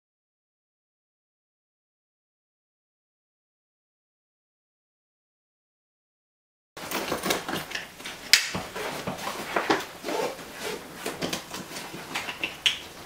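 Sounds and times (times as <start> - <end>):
nylon straps and fabric rustling: 8.6 - 12.4.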